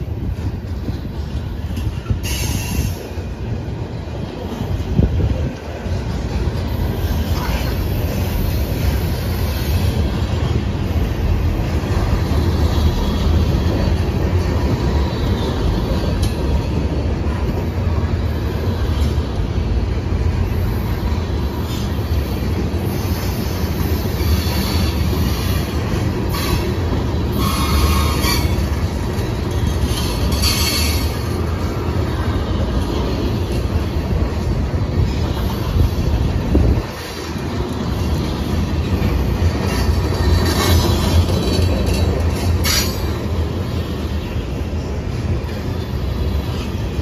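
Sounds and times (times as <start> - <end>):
train wheels rumbling on rails: 0.0 - 47.0
high wheel squeals: 27.3 - 28.9.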